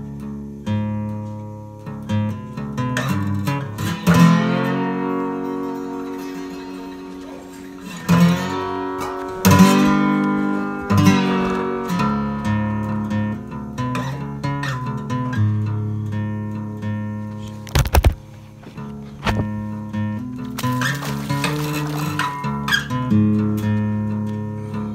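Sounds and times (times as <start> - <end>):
acoustic guitar: 0.0 - 24.9.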